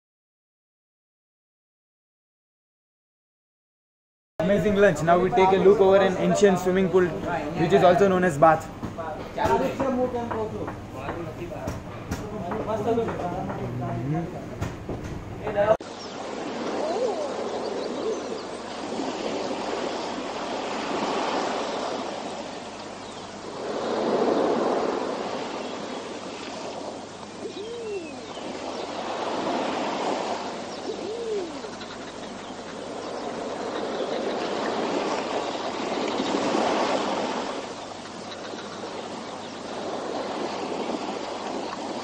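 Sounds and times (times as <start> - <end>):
rushing noise like surf: 15.6 - 31.8, 32.8 - 42.0
hooting bird calls: 15.8 - 42.0.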